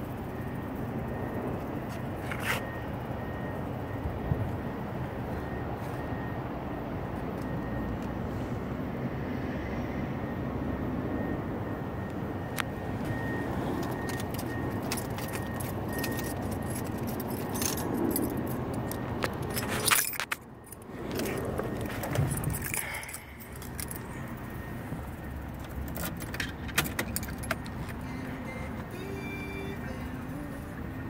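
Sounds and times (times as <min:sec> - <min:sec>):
key clicks in ignition: 0:12.6 - 0:24.4, 0:25.0 - 0:29.3
car keys jangling: 0:13.0 - 0:30.4.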